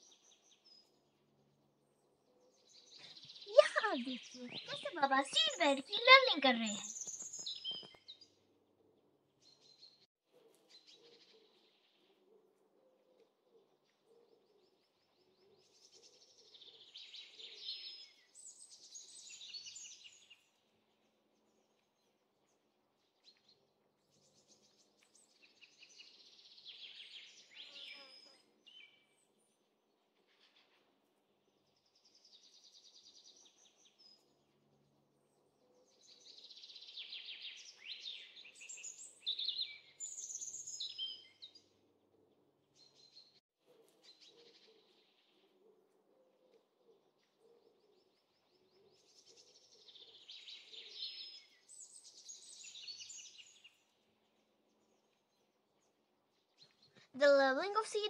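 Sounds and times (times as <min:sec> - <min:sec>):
birds trilling and chirping: 0:02.3 - 0:08.0.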